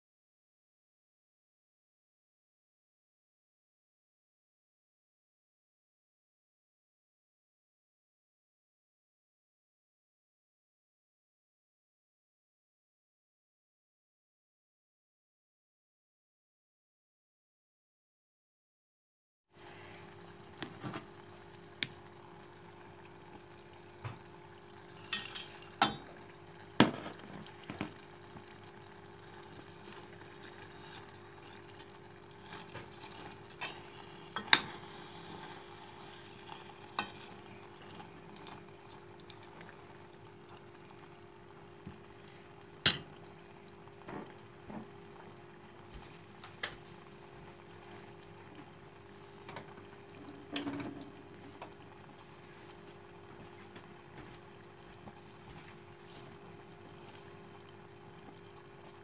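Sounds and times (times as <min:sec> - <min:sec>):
low sizzle: 0:19.6 - 0:59.0
spoon clinking on pot: 0:25.0 - 0:26.0, 0:42.9 - 0:43.1
spoon stirring thick food in pot: 0:29.6 - 0:38.7.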